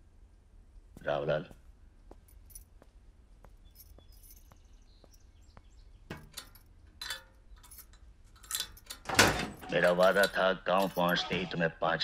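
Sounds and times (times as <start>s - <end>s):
soft footsteps: 0.4s - 6.9s
metallic clinks of keys in lock: 3.6s - 5.2s, 6.2s - 11.2s.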